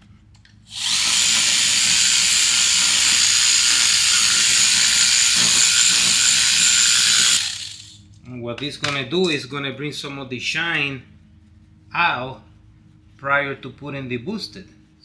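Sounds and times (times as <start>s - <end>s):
power polisher whining: 0.7s - 7.9s.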